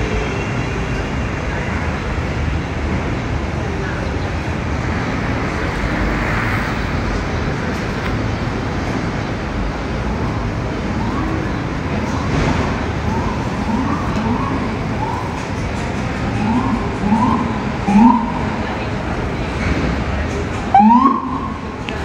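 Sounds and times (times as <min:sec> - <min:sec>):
city street traffic: 0:00.0 - 0:22.0
siren rising and falling: 0:13.0 - 0:15.4, 0:16.3 - 0:18.7, 0:20.7 - 0:21.7.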